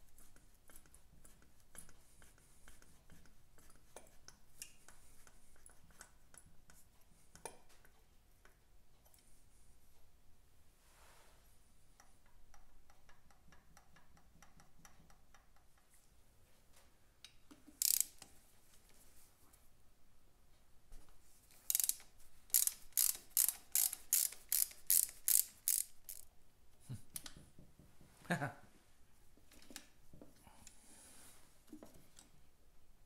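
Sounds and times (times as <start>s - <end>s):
loud ratchet strokes: 17.8s - 18.2s, 21.7s - 26.3s
ratchet wrench clicking: 17.8s - 18.2s, 21.6s - 26.3s.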